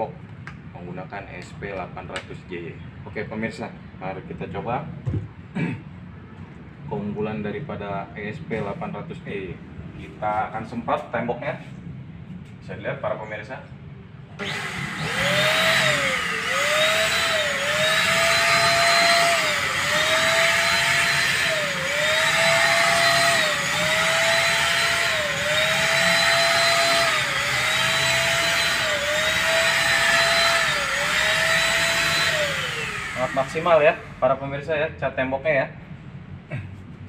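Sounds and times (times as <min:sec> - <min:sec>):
electric spray gun motor whine: 0:14.4 - 0:34.2.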